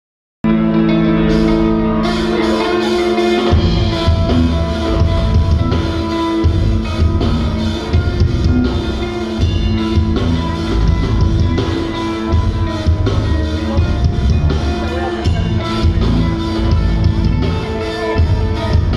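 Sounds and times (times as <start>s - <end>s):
metal band playing: 0.4s - 18.9s
heavy bass drum hits: 3.5s - 17.6s.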